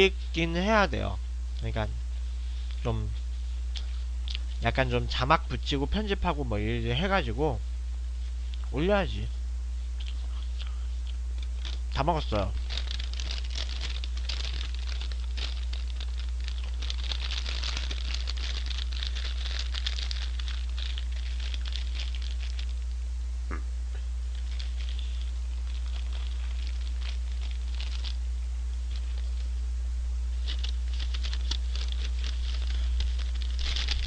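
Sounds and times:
paper packaging crinkling: 11.4 - 22.9, 24.3 - 28.2, 28.8 - 29.5, 30.3 - 34.0.

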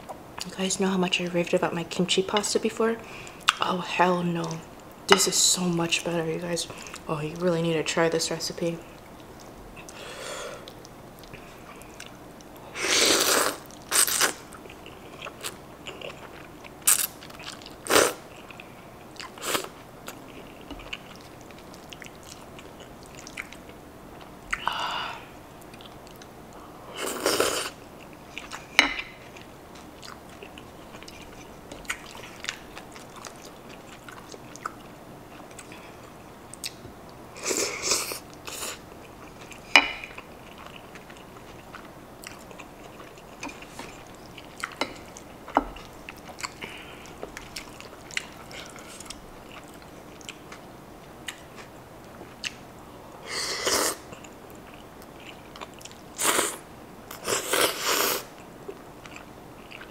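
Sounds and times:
slurping noodles: 12.8 - 14.3
chewing with wet mouth clicks: 20.0 - 24.7, 25.6 - 26.3, 28.0 - 35.9, 36.5 - 36.9, 38.3 - 52.6, 54.1 - 56.0, 58.4 - 59.9.

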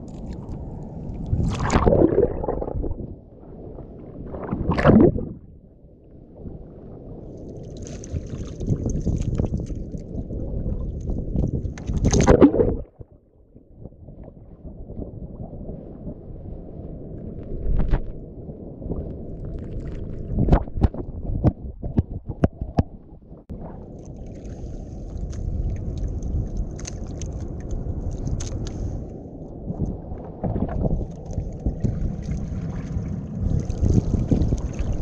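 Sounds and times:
water moving around boat: 0.0 - 35.0
wind rumbling on microphone: 0.0 - 35.0
loud splash: 1.4 - 3.0, 4.5 - 5.4, 12.0 - 12.9.

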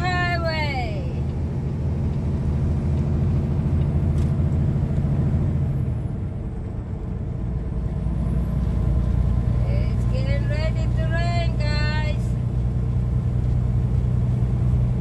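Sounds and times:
road noise: 0.0 - 15.0
truck diesel engine drone: 0.0 - 15.0.

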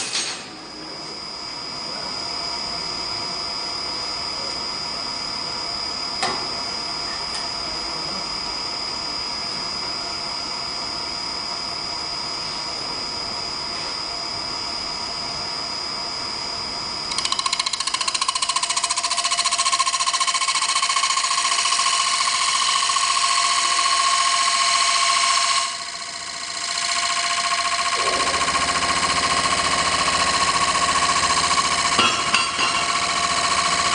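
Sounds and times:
cutter rattling on spinning wood: 17.1 - 33.9
lathe motor whining: 17.1 - 33.9.

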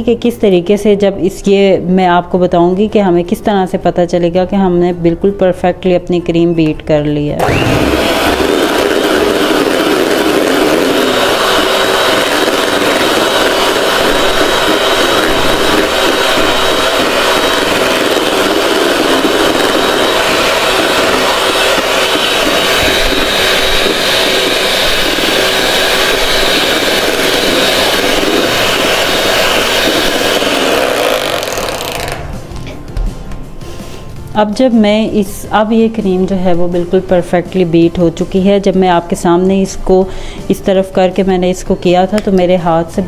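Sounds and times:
electric hand mixer whining: 7.4 - 32.4.

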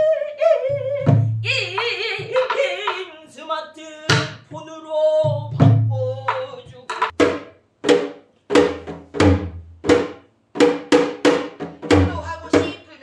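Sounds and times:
woman singing long wavering notes: 0.0 - 6.6
drum strokes: 5.5 - 12.8.

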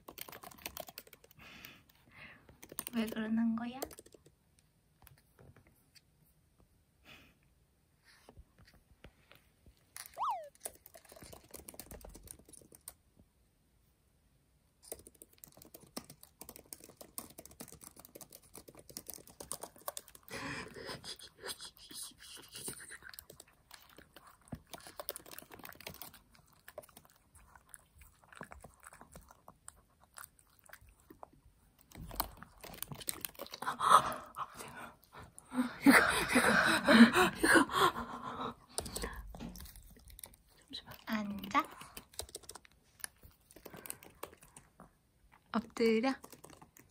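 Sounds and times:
laptop keyboard typing: 0.0 - 4.4, 10.2 - 13.0, 14.8 - 21.8, 22.6 - 29.4, 31.8 - 33.7, 38.6 - 44.8, 46.0 - 46.9
dog licking hands: 14.9 - 35.3.

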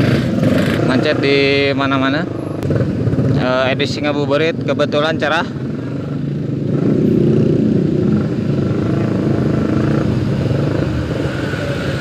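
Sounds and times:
motorcycle engines droning: 0.0 - 12.0.

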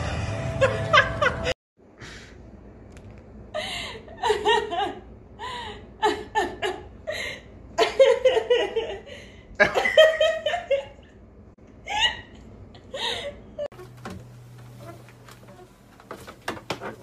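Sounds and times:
person laughing breathily: 12.8 - 13.6.

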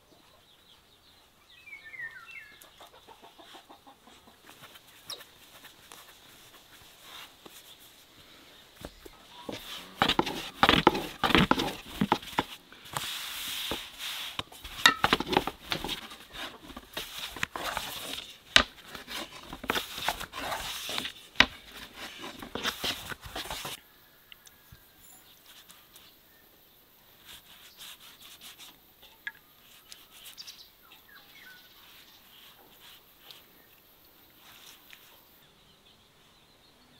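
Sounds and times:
pastry brush strokes: 4.4 - 23.8, 27.2 - 30.6, 31.7 - 33.6, 34.4 - 35.2
rolling pin rolling dough: 8.8 - 23.8.

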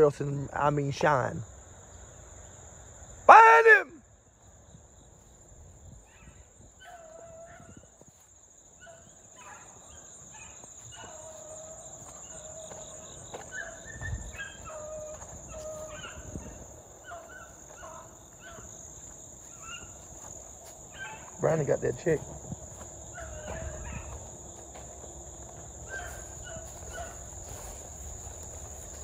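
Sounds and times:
insects trilling: 0.0 - 29.0
dogs barking: 6.1 - 29.0.

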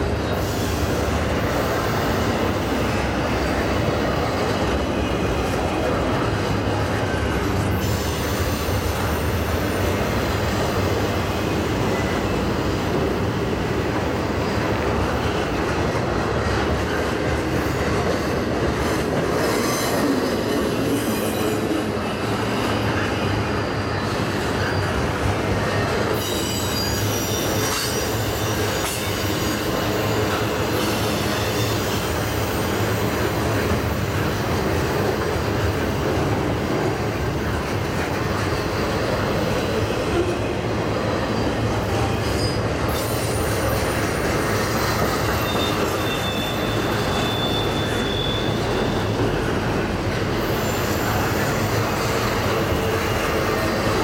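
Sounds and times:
train wheels rumbling on rail: 0.0 - 54.0
high wheel squeals: 19.4 - 34.2, 41.2 - 49.4, 50.4 - 54.0.

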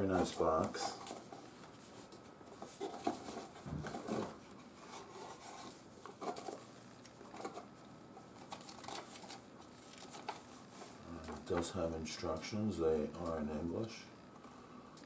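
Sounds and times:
paper and plastic rustling: 0.0 - 11.8.

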